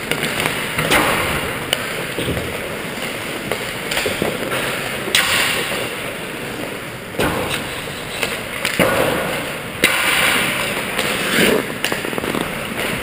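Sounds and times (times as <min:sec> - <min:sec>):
hockey sticks and pucks clacking: 0:00.0 - 0:13.0
skate blades scraping ice: 0:07.5 - 0:13.0.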